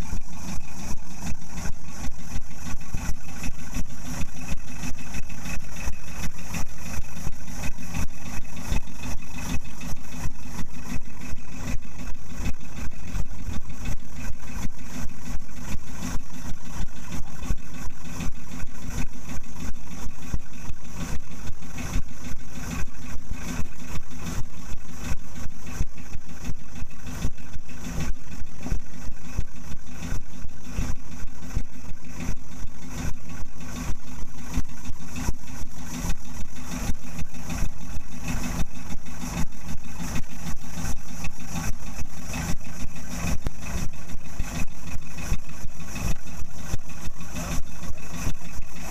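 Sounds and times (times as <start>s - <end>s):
boat engine idling: 0.0s - 48.9s.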